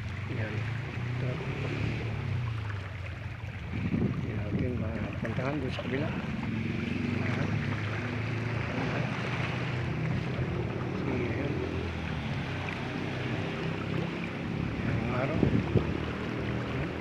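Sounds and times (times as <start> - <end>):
water lapping on rocks: 0.0 - 17.0
wind on microphone: 3.6 - 11.6, 14.4 - 17.0.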